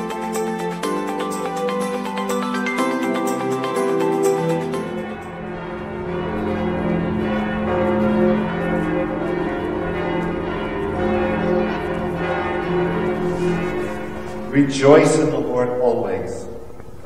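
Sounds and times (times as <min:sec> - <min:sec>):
church bells ringing: 0:00.0 - 0:17.0.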